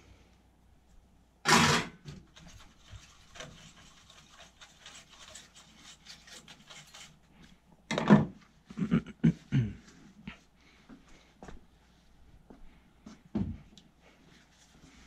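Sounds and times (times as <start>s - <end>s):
tool scrubbing circuit board: 2.5s - 7.2s.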